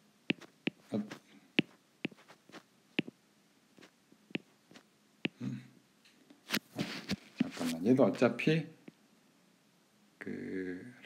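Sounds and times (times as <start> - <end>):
stylus tapping glass screen: 0.3 - 0.9, 1.6 - 3.1.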